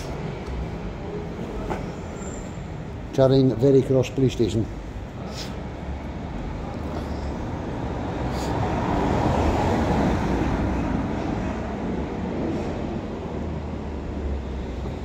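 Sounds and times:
city street traffic: 0.0 - 15.0
vehicle passing: 5.7 - 15.0.

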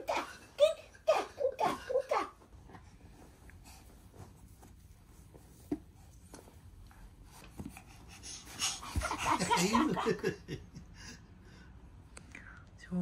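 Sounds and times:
baby laughing: 8.6 - 10.3.

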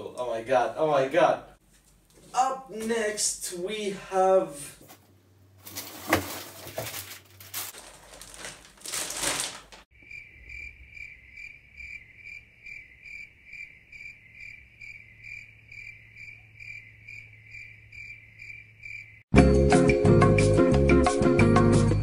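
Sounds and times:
plastic wrap crinkling: 5.6 - 9.9
cricket chirping: 9.9 - 19.3.

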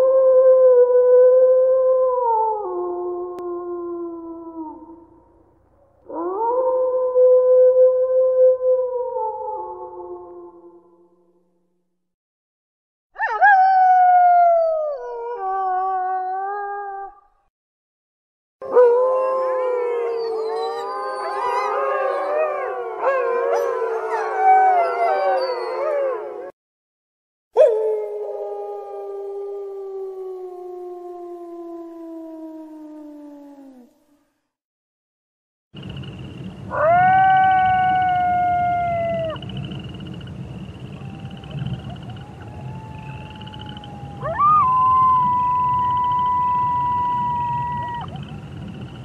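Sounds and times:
wolves howling in chorus: 18.6 - 26.5, 40.9 - 48.4.

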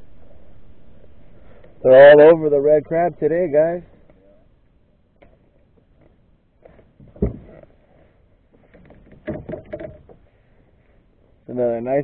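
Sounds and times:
heavy thump: 7.0 - 7.6.

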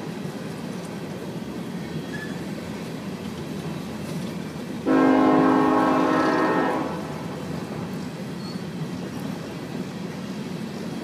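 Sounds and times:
freight train rolling past: 0.0 - 11.0
loud train horn: 4.9 - 7.4.

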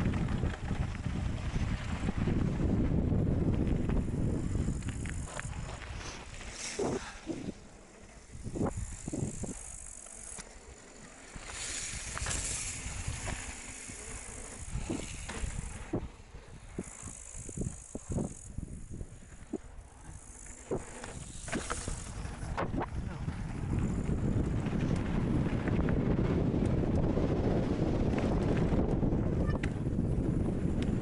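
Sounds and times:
bike tyres crunching on gravel: 0.0 - 29.2
bike clicks and knocks: 3.6 - 7.2, 8.4 - 16.0, 16.8 - 27.1.

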